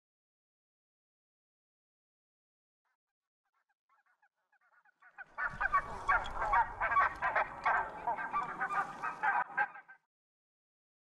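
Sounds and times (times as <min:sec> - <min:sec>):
geese honking: 0:05.0 - 0:10.0.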